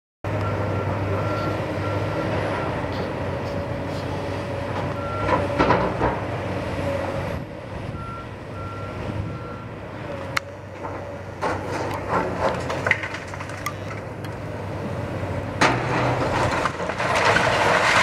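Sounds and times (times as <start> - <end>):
excavator diesel engine running: 0.3 - 18.0
brick debris clattering: 11.4 - 14.0, 15.6 - 18.0.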